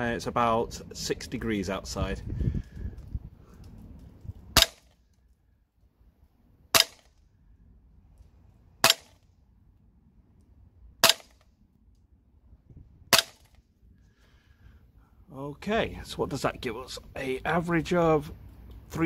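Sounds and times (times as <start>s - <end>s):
airsoft pistol shots: 4.6s - 5.0s, 6.8s - 7.1s, 8.8s - 9.2s, 11.0s - 11.4s, 13.1s - 13.6s.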